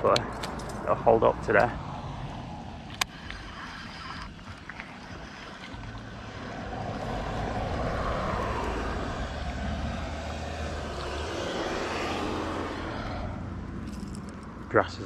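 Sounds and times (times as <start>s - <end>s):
vehicle passing by: 5.7s - 14.7s.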